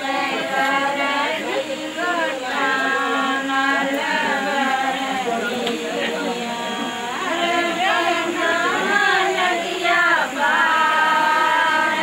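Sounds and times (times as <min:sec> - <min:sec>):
voices singing: 0:00.0 - 0:12.0.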